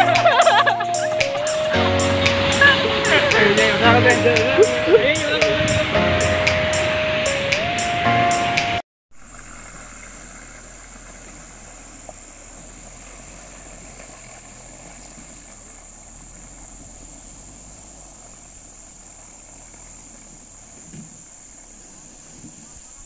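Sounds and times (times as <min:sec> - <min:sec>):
high-pitched drone: 0:00.0 - 0:08.7
vehicle engine running low: 0:09.2 - 0:22.9.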